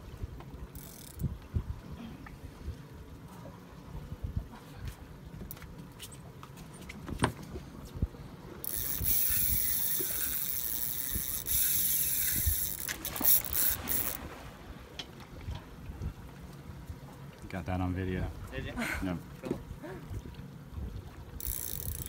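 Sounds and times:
fishing reel clicks: 0.7 - 1.3, 8.6 - 14.2, 21.4 - 22.0
fishing reel drag whining: 0.7 - 1.3, 8.6 - 14.2, 21.4 - 22.0.

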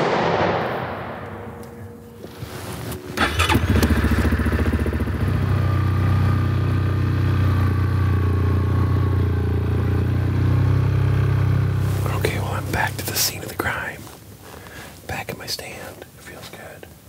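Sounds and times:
atv engine running: 3.0 - 13.3.

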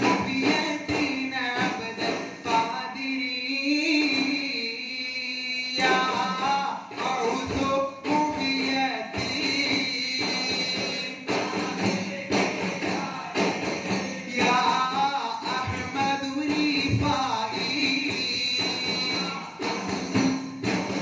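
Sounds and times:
frame drums with jingles beating: 0.0 - 4.9, 5.7 - 21.0
group singing a chorus: 9.1 - 15.9.

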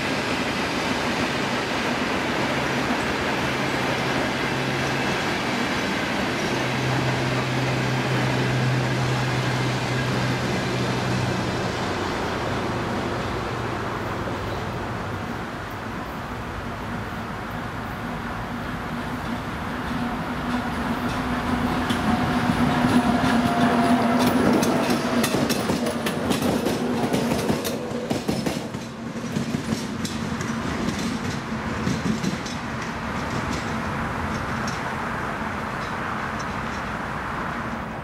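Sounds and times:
locomotive engine drone: 0.0 - 38.0
train wheels clattering over rail joints: 19.1 - 37.1.

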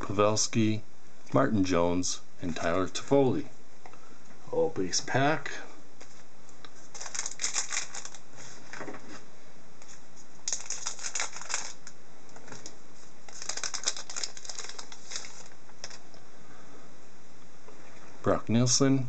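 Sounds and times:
foil wrapper crinkling: 6.8 - 8.2, 10.4 - 16.1.

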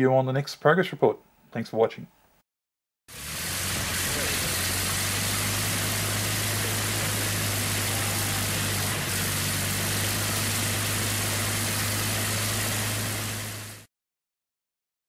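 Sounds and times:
engine humming with hiss: 3.1 - 13.9.

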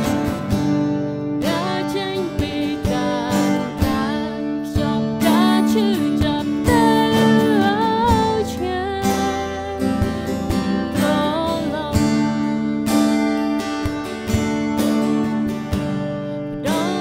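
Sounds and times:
strummed acoustic guitar: 0.0 - 17.0
person singing with vibrato: 1.3 - 12.8, 15.8 - 17.0.

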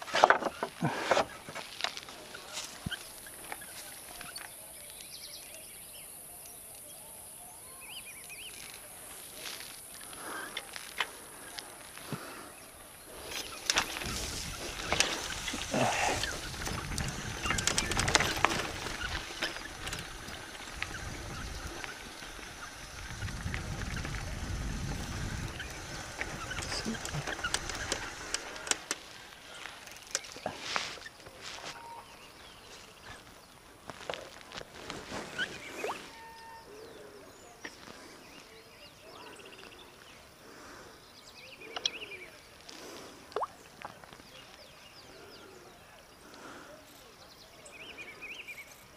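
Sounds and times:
tyres crunching over stones: 0.0 - 5.2, 8.1 - 31.8, 32.7 - 36.1
bike rattling: 0.0 - 5.8, 8.0 - 37.1
wind rumble on microphone: 13.7 - 28.4.

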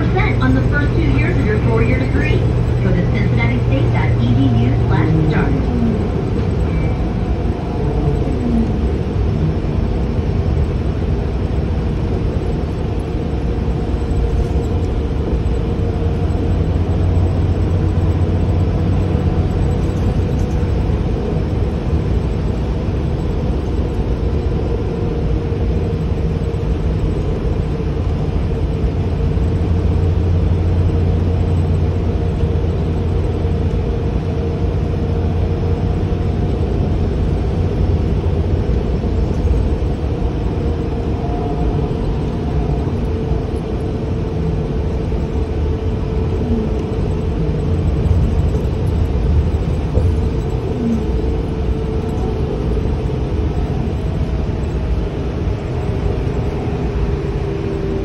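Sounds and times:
faint steady hum: 0.0 - 24.6
bus engine and road rumble: 0.0 - 58.0.

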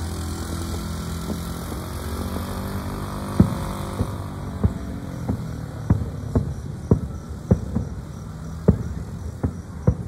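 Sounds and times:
low engine-like drone: 0.0 - 10.0
fireworks booms: 3.2 - 10.0.

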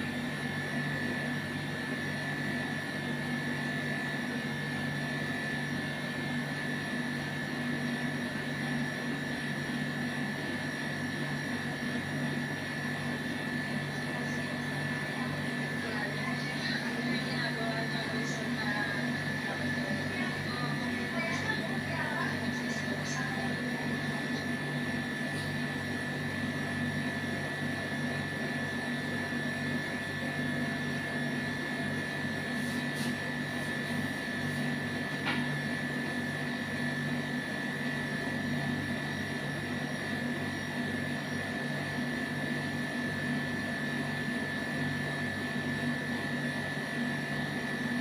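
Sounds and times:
machine humming with high whine: 0.0 - 48.0.

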